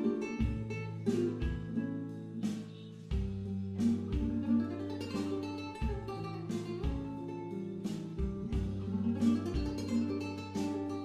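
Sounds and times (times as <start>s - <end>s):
plucked acoustic guitar: 0.0s - 11.0s
bass line: 3.1s - 7.3s, 8.0s - 10.9s.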